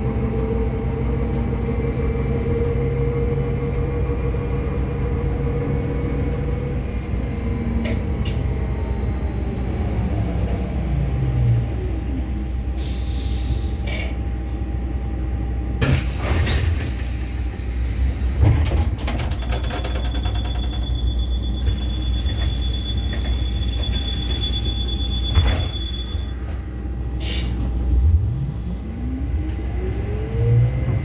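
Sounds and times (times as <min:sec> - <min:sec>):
traction motor whine rising: 0:27.8 - 0:31.0.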